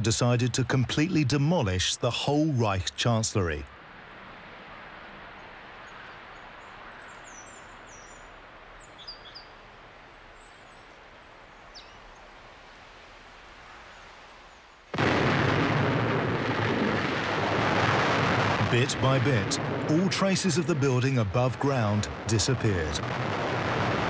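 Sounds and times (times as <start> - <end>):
faint outdoor hiss: 0.0 - 24.0
bird chirps: 5.9 - 9.6, 10.4 - 12.3
demolition explosion rumble: 14.9 - 24.0.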